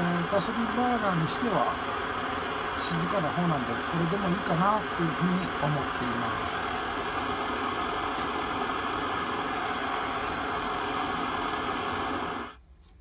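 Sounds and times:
stove burner hissing: 0:00.0 - 0:12.6.

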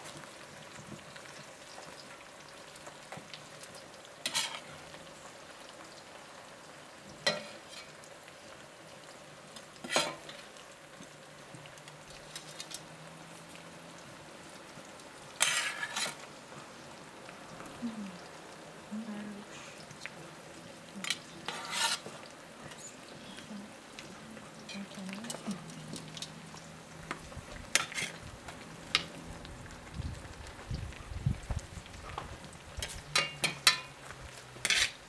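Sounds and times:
steady low hiss: 0:00.0 - 0:35.0
metal spoon scraping a pot: 0:04.2 - 0:04.7, 0:09.8 - 0:10.4, 0:12.2 - 0:12.8, 0:15.4 - 0:16.2, 0:21.0 - 0:22.1, 0:27.7 - 0:28.2, 0:32.8 - 0:33.9, 0:34.6 - 0:35.0.

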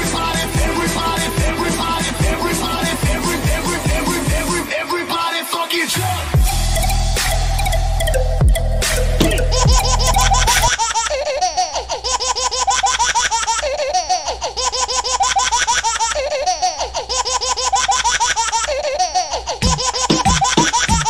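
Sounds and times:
high-pitched giggling laughter: 0:09.2 - 0:21.0.

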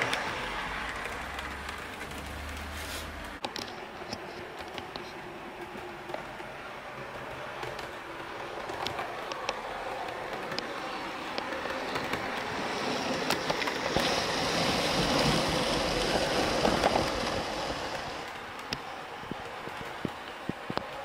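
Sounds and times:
model train rolling on track: 0:00.0 - 0:21.0.

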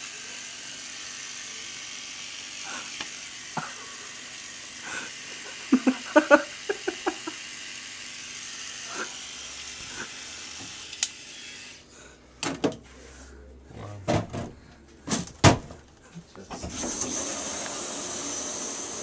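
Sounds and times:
electric shaver buzzing: 0:00.0 - 0:11.9, 0:16.7 - 0:19.0.

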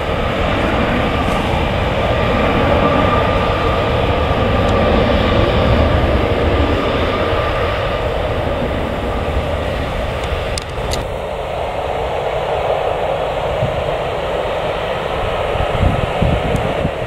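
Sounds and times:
low rumble: 0:00.0 - 0:14.2
jet engines rushing: 0:00.0 - 0:17.0.

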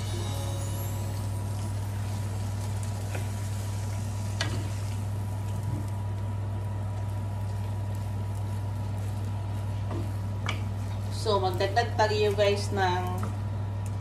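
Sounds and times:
steady low hum: 0:00.0 - 0:14.0
food simmering in a pan: 0:01.2 - 0:13.9
wooden spatula stirring: 0:07.0 - 0:11.8.

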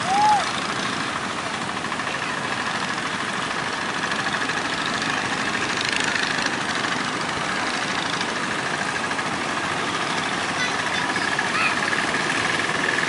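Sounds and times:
small boat engine running: 0:00.0 - 0:13.0.

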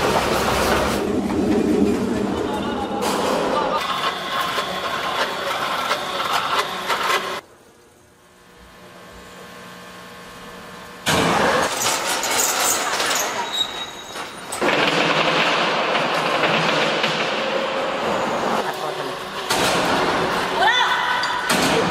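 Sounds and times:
industrial machinery din: 0:00.0 - 0:07.4, 0:11.0 - 0:20.6.

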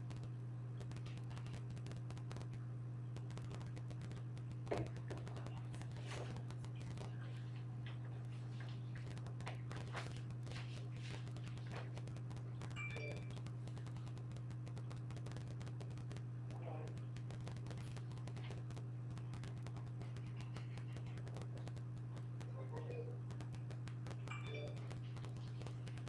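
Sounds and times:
steady low hum: 0:00.0 - 0:26.0
puppy claws on hardwood floor: 0:03.5 - 0:12.2.

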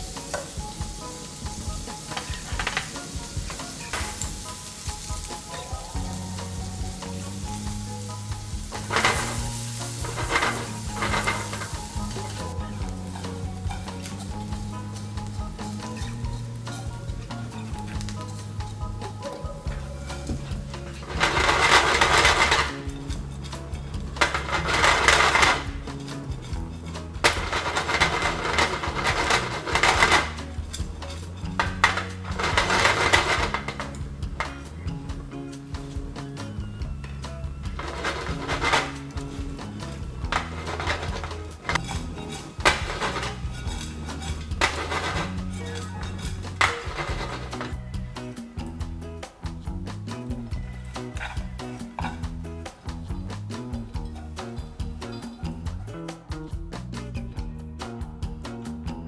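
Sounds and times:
food sizzling in butter in a pan: 0:00.0 - 0:34.8, 0:37.7 - 0:48.1
chopsticks stirring in a pan: 0:00.0 - 0:34.9, 0:37.4 - 0:48.2, 0:50.5 - 0:55.5.

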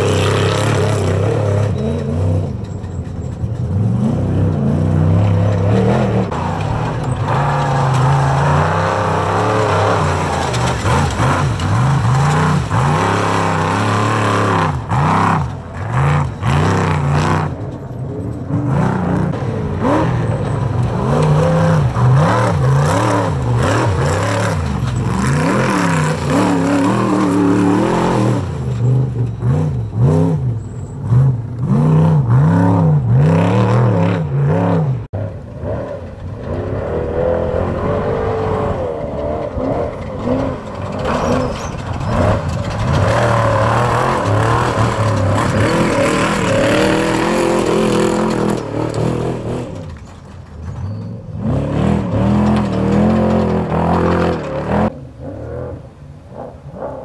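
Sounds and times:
second race vehicle engine revving: 0:00.0 - 0:02.7, 0:03.6 - 0:50.0, 0:51.3 - 0:57.0
off-road truck engine revving: 0:00.0 - 0:57.0.

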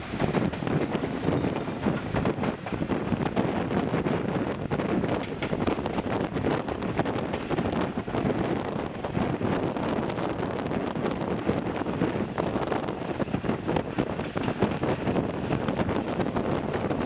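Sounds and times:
train running on track: 0:00.0 - 0:17.0
wind buffeting microphone: 0:00.0 - 0:17.0.

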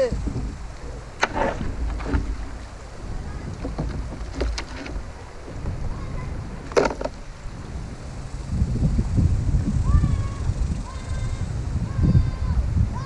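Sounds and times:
rumble of moving water: 0:00.0 - 0:13.0
paddle and hull knocks and splashes: 0:00.2 - 0:07.6.

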